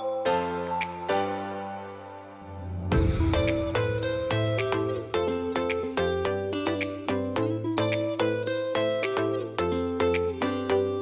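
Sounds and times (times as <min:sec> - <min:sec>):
steady bass line: 0:02.4 - 0:06.4.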